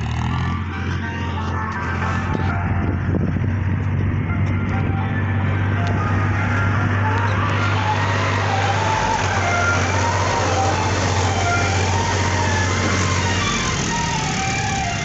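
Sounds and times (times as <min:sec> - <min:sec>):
rising and falling tune: 0:00.0 - 0:15.0
tractor engine running: 0:00.0 - 0:15.0.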